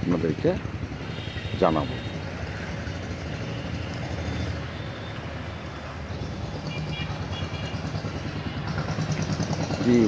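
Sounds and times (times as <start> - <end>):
vehicle engines rumbling: 0.0 - 10.0.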